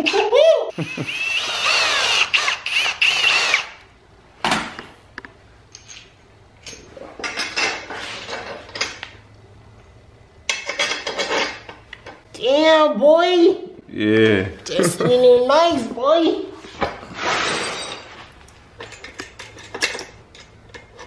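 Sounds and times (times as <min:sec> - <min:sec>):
cordless drill whining: 0:01.0 - 0:03.8
metal parts scraping and clinking: 0:05.7 - 0:09.0, 0:10.5 - 0:11.8, 0:17.1 - 0:21.0.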